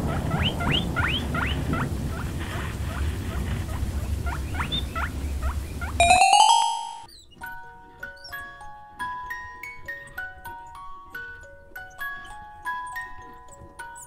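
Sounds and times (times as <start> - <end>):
bell-like music notes: 6.0 - 7.1.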